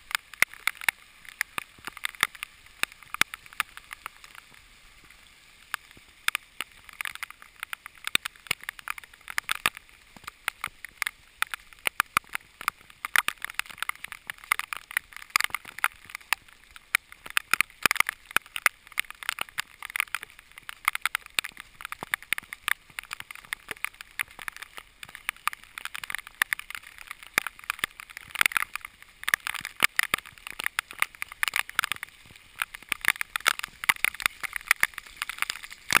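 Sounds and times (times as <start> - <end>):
hiss of rainfall: 0.0 - 36.0
raindrops striking camera housing: 0.0 - 36.0.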